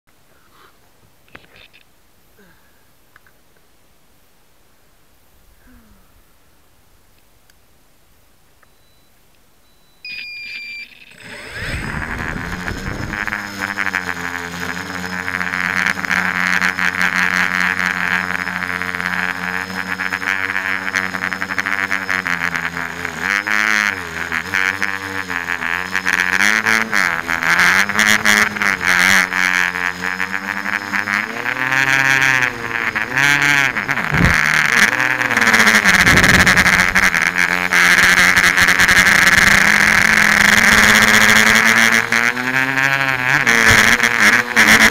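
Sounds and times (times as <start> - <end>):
drone motors buzzing whine: 9.7 - 44.9.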